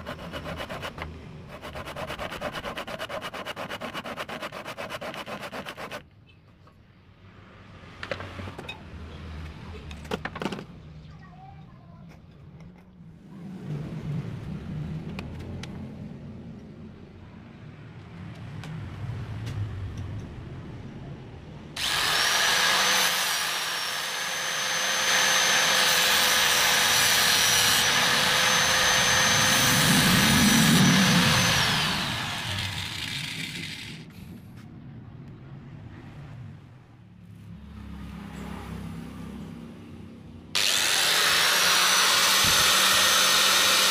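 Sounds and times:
grinder disc grinding wood: 0.0 - 6.0, 21.8 - 34.0, 40.6 - 43.9
angle grinder whining: 21.8 - 34.1, 40.6 - 43.9
low rumble: 28.4 - 37.1.

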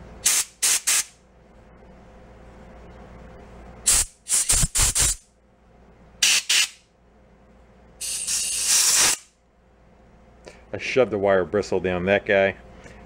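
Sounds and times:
compressed air blasts hissing: 0.2 - 1.1, 3.9 - 5.2, 6.2 - 6.8, 8.0 - 9.3.

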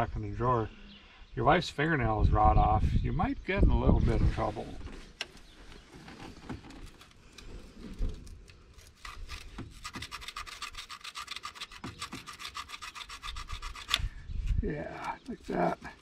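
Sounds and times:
file rasping on metal: 9.0 - 14.0.

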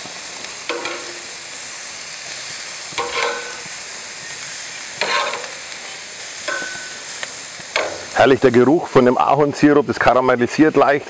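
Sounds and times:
steaks sizzling on a grill: 0.0 - 11.0
tongs clinking against grate: 0.7 - 1.3, 2.9 - 3.8, 5.0 - 5.7, 6.5 - 7.0, 7.7 - 8.1.

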